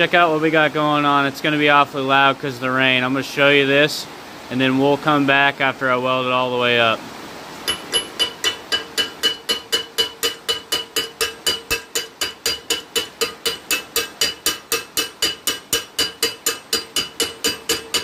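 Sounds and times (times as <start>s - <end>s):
chipping hammer striking steel weld: 7.7s - 18.0s.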